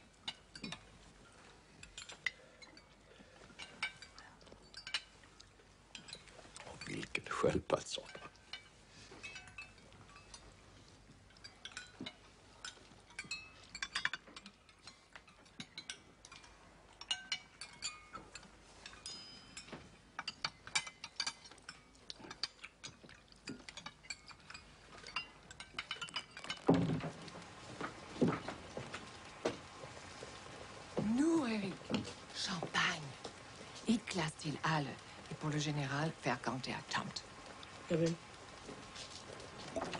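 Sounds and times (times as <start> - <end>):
spoons clinking on plates and glasses: 0.2 - 27.2.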